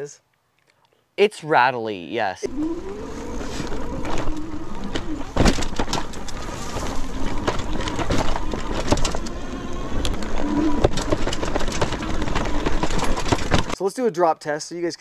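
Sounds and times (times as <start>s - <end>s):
electric bike rattling on dirt trail: 2.5s - 13.8s.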